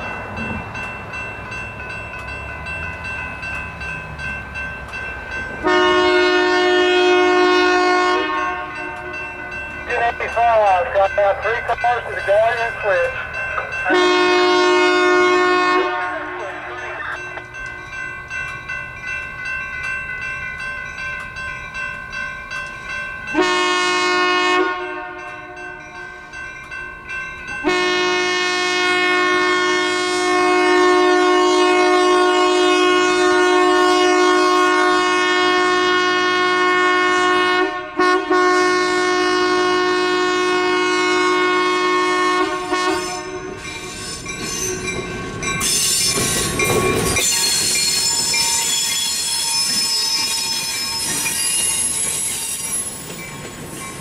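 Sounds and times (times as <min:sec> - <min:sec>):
locomotive engine passing: 0:00.0 - 0:23.4
crossing warning bell ringing: 0:00.0 - 0:54.0
locomotive air horn: 0:05.6 - 0:09.1, 0:13.9 - 0:16.8, 0:23.4 - 0:25.3, 0:27.6 - 0:43.6.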